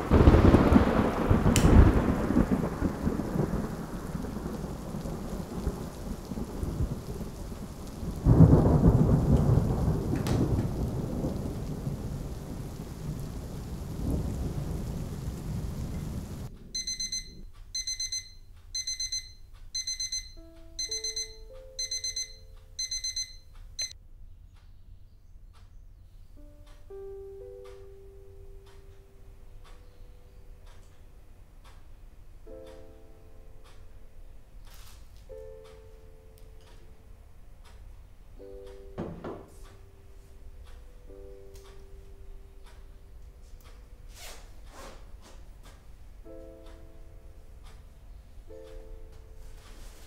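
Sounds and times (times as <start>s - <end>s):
rain: 0.0s - 16.8s, 34.5s - 35.3s, 47.4s - 50.0s
thunder claps: 0.0s - 18.2s
alarm clock beeping: 16.8s - 24.0s.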